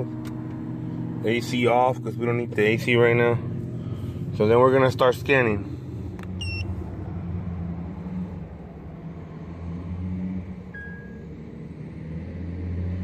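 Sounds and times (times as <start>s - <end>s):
car engine idling: 0.0s - 9.6s
short high electronic beep: 10.8s - 11.2s.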